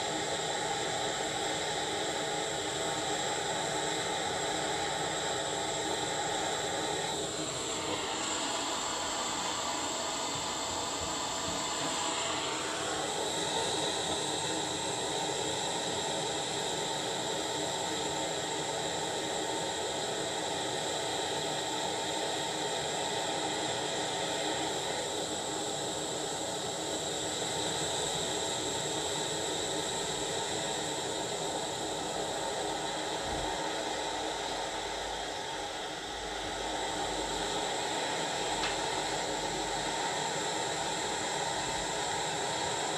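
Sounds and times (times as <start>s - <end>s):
propane torch hissing: 0.0s - 42.9s.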